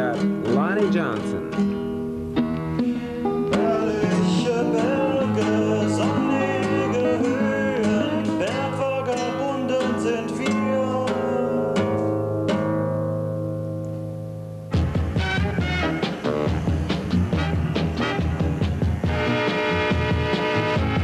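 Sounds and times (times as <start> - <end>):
fingerpicked acoustic guitar: 0.0 - 21.0
man singing: 3.5 - 12.0.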